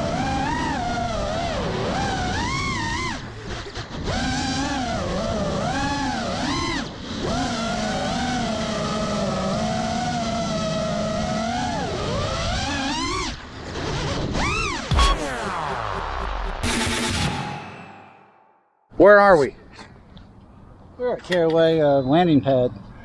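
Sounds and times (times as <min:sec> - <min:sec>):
quadcopter motors whining: 0:00.0 - 0:16.8.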